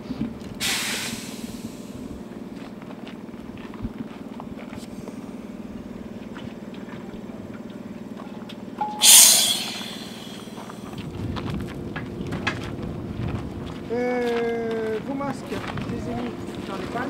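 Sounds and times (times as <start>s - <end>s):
compressed air hissing: 0.6s - 2.0s, 8.9s - 10.9s
steady low hum: 8.8s - 11.0s.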